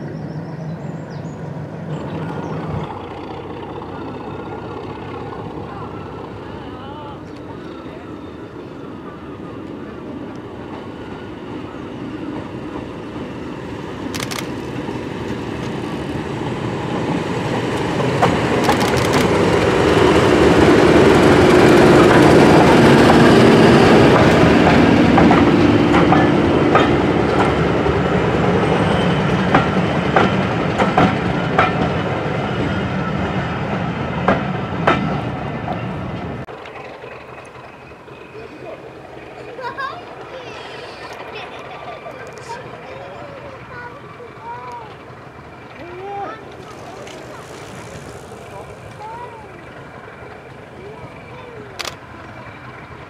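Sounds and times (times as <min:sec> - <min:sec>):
diesel locomotive engine drone: 0:00.0 - 0:53.0
wheels clicking over rail joints: 0:17.0 - 0:23.2, 0:34.2 - 0:53.0.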